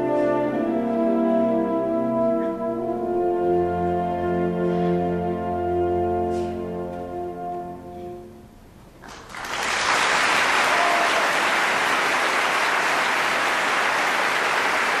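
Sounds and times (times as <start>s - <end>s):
audience applause: 9.0s - 15.0s.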